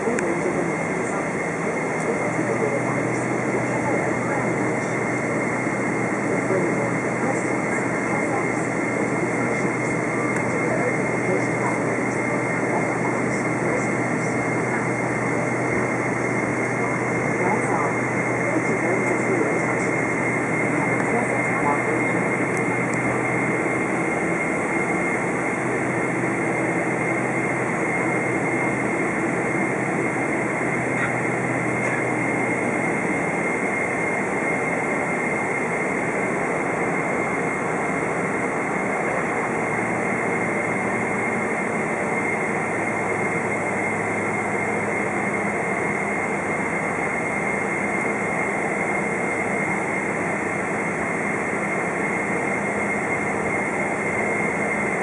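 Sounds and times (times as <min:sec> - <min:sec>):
high engine whine: 0:00.0 - 0:55.0
jet engine rush in cabin: 0:00.0 - 0:55.0.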